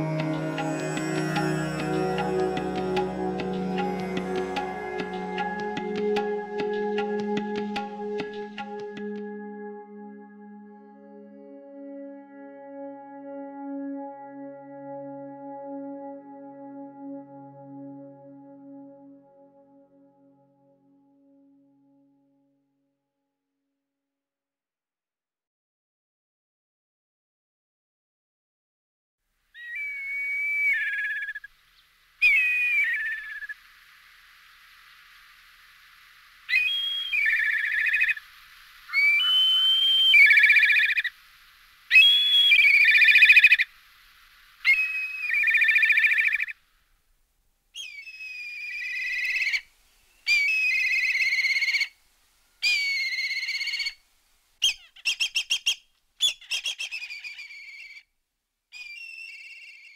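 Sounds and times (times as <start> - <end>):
kites calling whistled calls: 29.6 - 31.5, 32.2 - 33.7, 36.4 - 41.2, 41.9 - 43.7, 44.6 - 46.6, 47.8 - 52.0, 52.6 - 54.0, 54.6 - 58.0, 58.8 - 59.9.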